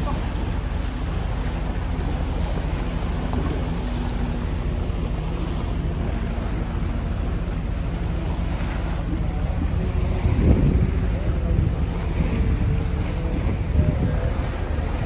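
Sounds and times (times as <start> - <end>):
small waves lapping on sand: 0.0 - 15.0
wind rumbling on microphone: 0.0 - 15.0.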